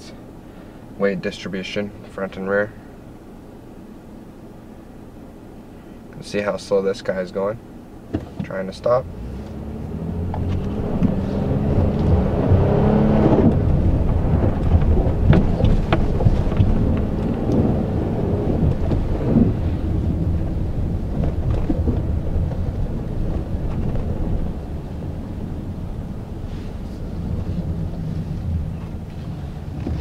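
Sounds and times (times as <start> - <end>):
car engine accelerating: 8.7 - 30.0
tyres rumbling in deep snow: 9.1 - 30.0.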